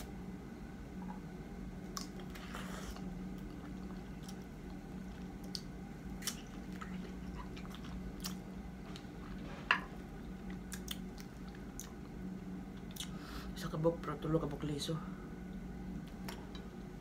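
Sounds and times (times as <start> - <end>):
chewing and biting soft fruit: 1.9 - 9.4, 10.1 - 12.1.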